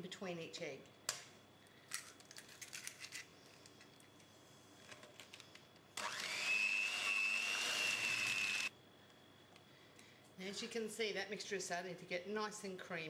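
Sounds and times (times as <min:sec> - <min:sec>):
electric hand mixer whining: 0:06.0 - 0:08.7.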